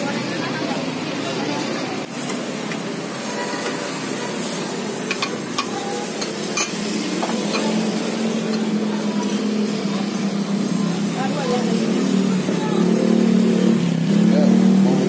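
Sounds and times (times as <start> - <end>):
ladle clinking bowls: 5.0 - 8.7.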